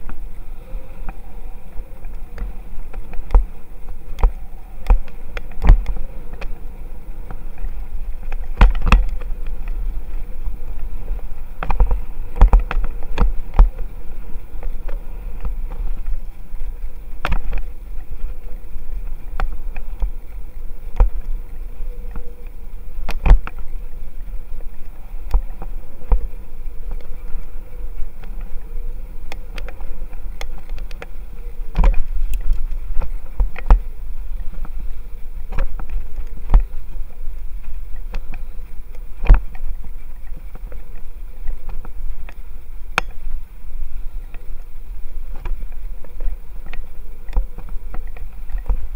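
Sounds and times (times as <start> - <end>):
bicycle road rumble: 0.0 - 48.9
wind noise: 0.0 - 48.9
bicycle knocks and rattles: 7.2 - 20.2.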